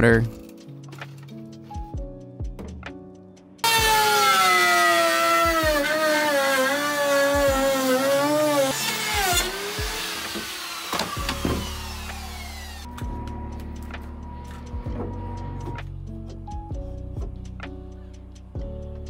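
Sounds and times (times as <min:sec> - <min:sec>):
router motor whine: 0:03.6 - 0:13.0.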